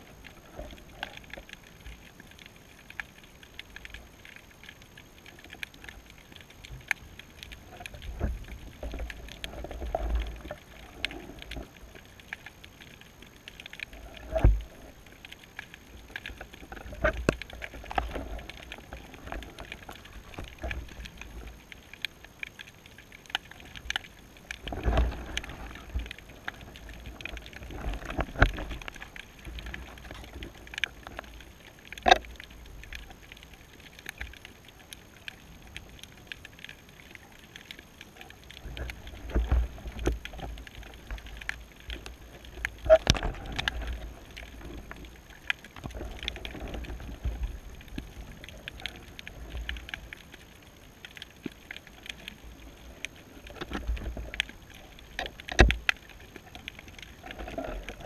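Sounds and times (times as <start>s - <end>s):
small clicks and knocks: 0.0s - 58.0s
muffled underwater thumps and surges: 38.4s - 50.4s.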